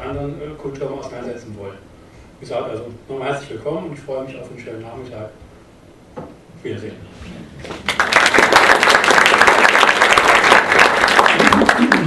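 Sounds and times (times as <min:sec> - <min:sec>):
audience applauding: 0:07.6 - 0:12.0.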